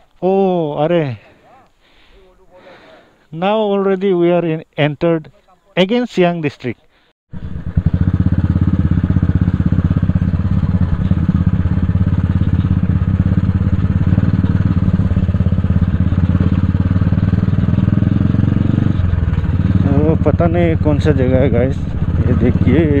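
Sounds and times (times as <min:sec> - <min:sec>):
motorcycle engine running: 0:07.3 - 0:23.0.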